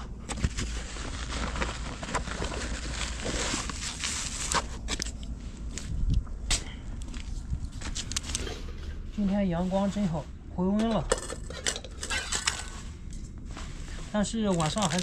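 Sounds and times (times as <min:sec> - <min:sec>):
bags rustling and crinkling: 0:00.1 - 0:06.1, 0:11.0 - 0:15.0.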